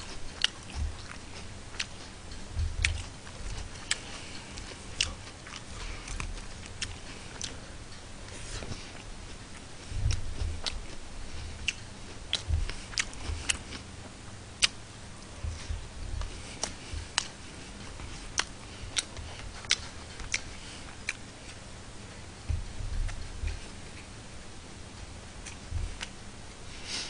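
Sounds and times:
man chewing food: 0.0 - 27.0
low thuds: 2.2 - 3.8, 9.8 - 13.7, 15.3 - 17.3, 22.4 - 24.0, 25.6 - 26.0.

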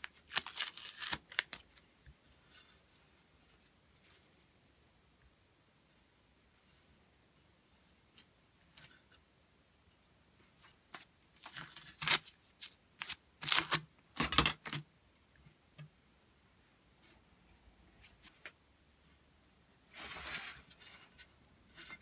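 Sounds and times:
tape being peeled off: 0.0 - 1.8, 11.4 - 13.8.

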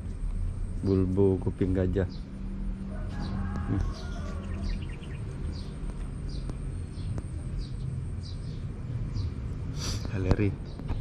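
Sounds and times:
steady low rumble: 0.0 - 11.0
bird chirping: 0.4 - 11.0.

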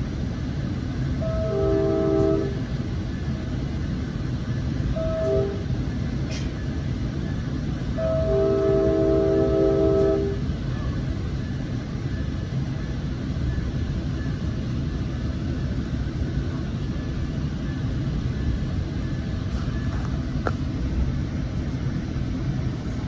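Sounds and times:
train rumbling: 0.0 - 23.0.

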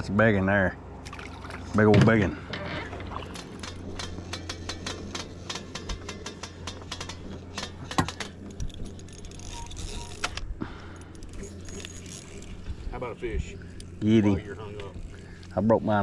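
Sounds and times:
steady low hum: 0.0 - 16.0
fishing tackle clicking and rattling: 3.2 - 12.8.

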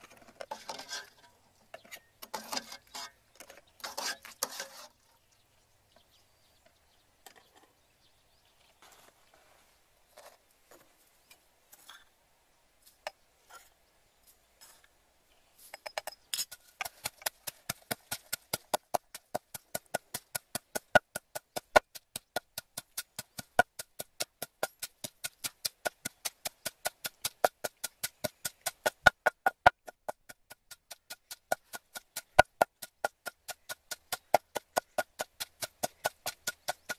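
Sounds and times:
pestle pounding in wooden mortar: 16.4 - 36.9.

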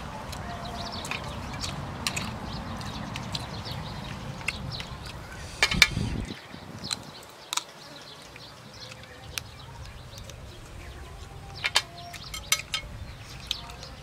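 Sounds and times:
person chewing: 0.2 - 9.1.

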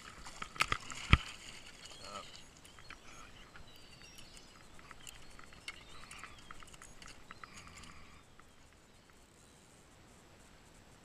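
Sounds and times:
fishing tackle clicking: 0.0 - 8.8.

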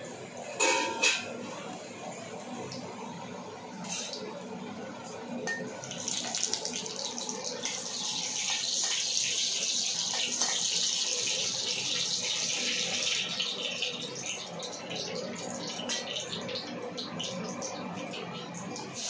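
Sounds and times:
hot oil sizzling: 5.8 - 19.0.

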